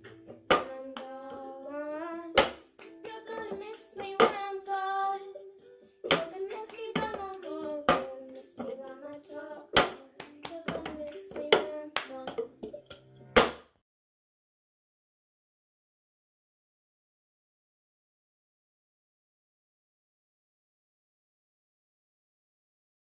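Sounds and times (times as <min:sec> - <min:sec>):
girl singing: 0:00.4 - 0:12.7
hand claps: 0:02.4 - 0:04.4, 0:06.1 - 0:13.6.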